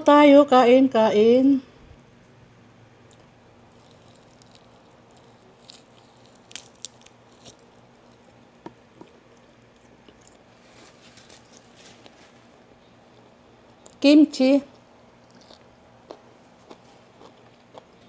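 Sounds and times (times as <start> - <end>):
person chewing: 3.0 - 10.6, 15.2 - 18.0.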